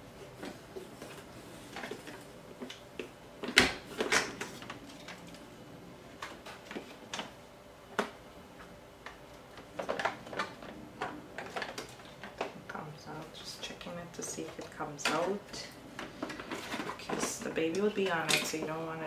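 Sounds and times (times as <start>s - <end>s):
plastic parts clicking and knocking: 9.0s - 12.6s.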